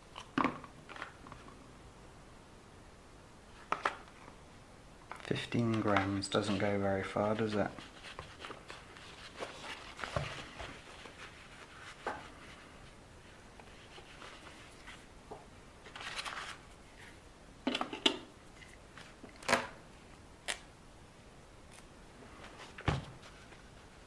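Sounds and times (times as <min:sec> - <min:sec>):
rustling scrapes: 0:05.8 - 0:15.1.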